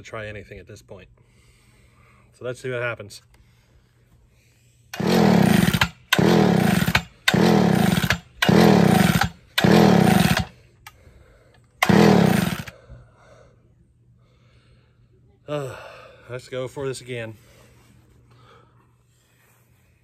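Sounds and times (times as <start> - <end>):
chainsaw pull starter cranking: 5.0 - 10.5, 11.8 - 12.8.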